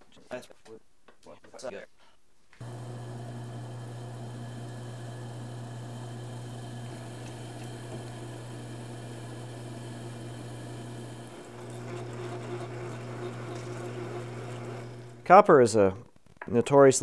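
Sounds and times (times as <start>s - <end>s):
drill bit boring into copper: 2.6s - 15.3s
lathe motor hum: 2.6s - 15.3s.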